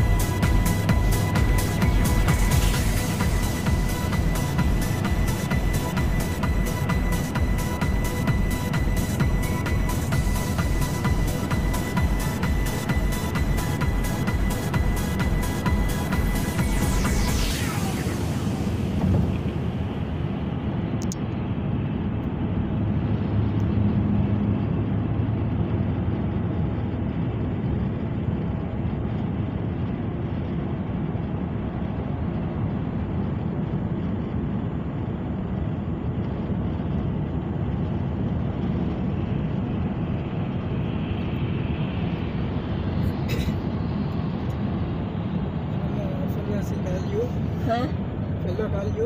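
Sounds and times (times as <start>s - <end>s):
road and engine rumble: 0.0s - 49.0s.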